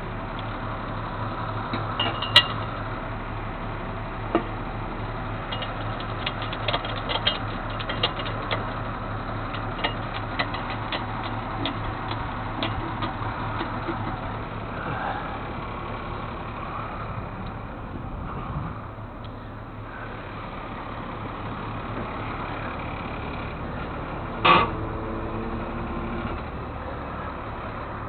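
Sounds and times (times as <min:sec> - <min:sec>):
vehicle engine humming: 0:00.0 - 0:28.0
light clicks and rattles: 0:05.5 - 0:14.3.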